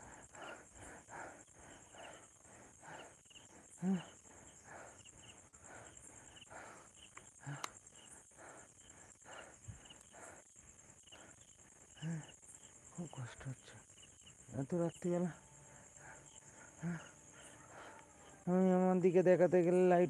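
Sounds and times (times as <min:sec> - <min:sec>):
man breathing heavily: 0:00.0 - 0:11.5, 0:15.6 - 0:18.4
crickets trilling: 0:00.0 - 0:20.0.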